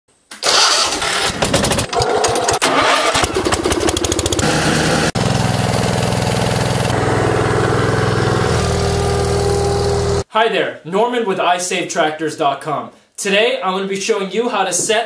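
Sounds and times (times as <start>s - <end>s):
engine starter cranking: 0.4s - 5.6s
small engine running: 0.5s - 10.2s.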